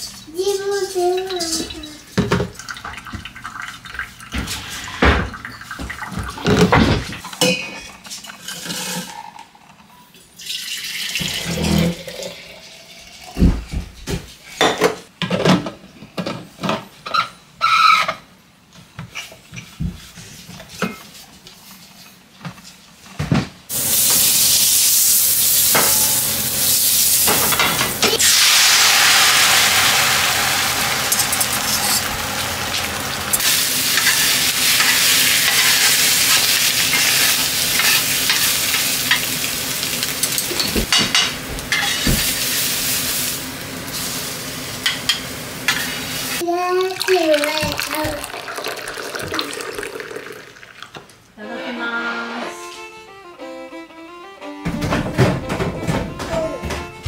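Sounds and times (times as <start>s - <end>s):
egg sizzling in frying pan: 23.7s - 40.6s, 41.5s - 46.4s
cups clinking and knocking: 47.4s - 51.1s.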